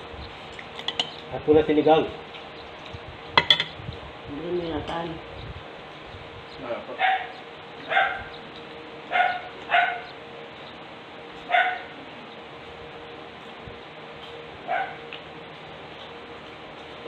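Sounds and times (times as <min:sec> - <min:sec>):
dog barking: 0:07.0 - 0:08.3, 0:09.1 - 0:10.1, 0:11.5 - 0:12.0, 0:14.7 - 0:15.0.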